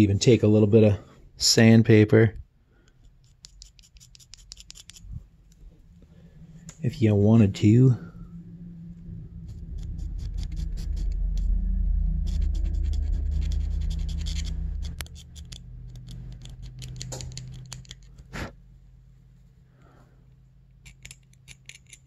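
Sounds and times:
sandpaper scratching metal: 3.2 - 5.1, 12.2 - 18.0
low rumble: 4.9 - 20.9.

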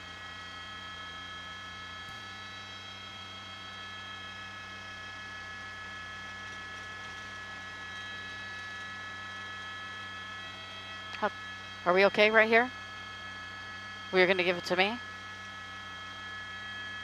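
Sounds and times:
helicopter drone: 0.0 - 17.0.

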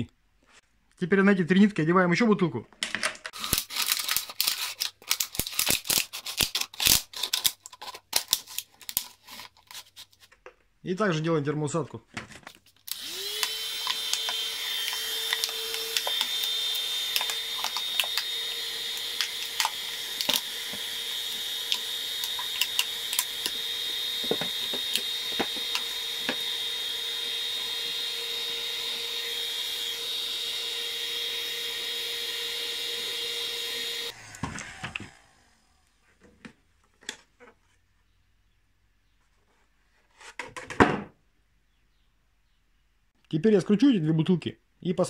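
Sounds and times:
heat gun whine and fan hiss: 12.9 - 35.9.

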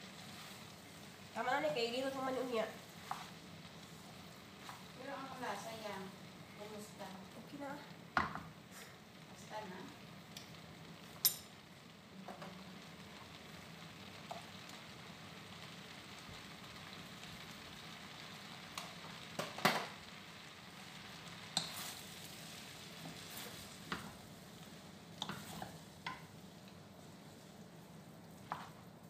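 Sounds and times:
noodles sizzling in frying pan: 0.0 - 29.0
wooden spatula scraping pan: 1.9 - 5.8.

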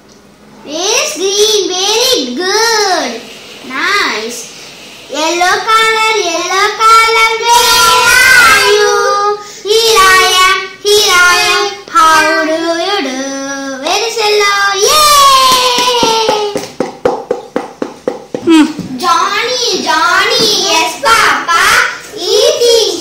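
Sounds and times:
child singing in a high voice: 5.2 - 16.6.

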